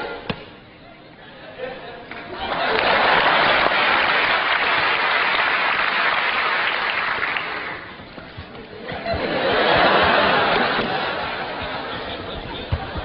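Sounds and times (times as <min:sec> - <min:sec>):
crowd noise: 0:00.0 - 0:13.0
audience applauding: 0:02.1 - 0:08.0, 0:09.2 - 0:13.0.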